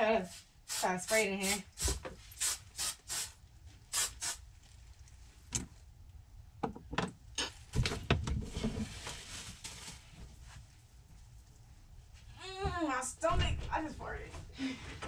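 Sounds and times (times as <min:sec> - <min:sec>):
plastic bag rustling: 0:08.4 - 0:10.6.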